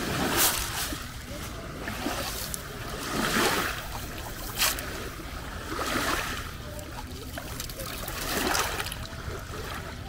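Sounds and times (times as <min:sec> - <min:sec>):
short sharp splash: 0:00.0 - 0:01.2, 0:01.9 - 0:05.0
small waves washing onto beach: 0:00.0 - 0:10.0.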